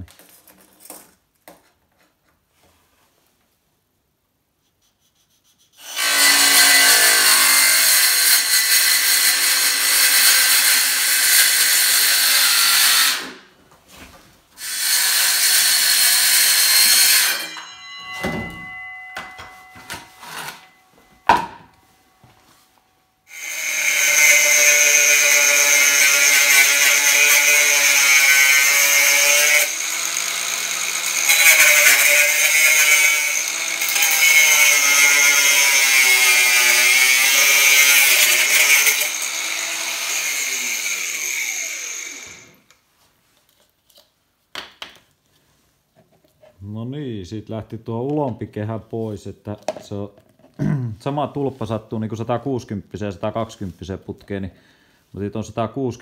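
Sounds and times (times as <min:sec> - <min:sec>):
circular saw cutting plastic: 0:04.9 - 0:13.4, 0:14.6 - 0:17.7, 0:23.3 - 0:42.7
angle grinder cutting plastic: 0:05.6 - 0:13.4, 0:14.6 - 0:18.0, 0:18.6 - 0:21.5, 0:23.3 - 0:42.7.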